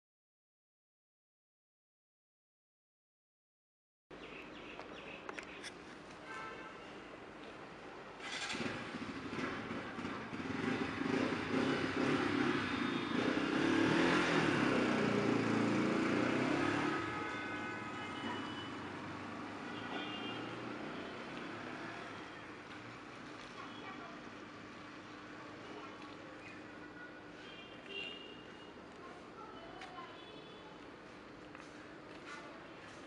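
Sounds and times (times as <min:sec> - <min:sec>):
motorcycle passing: 0:08.2 - 0:25.0.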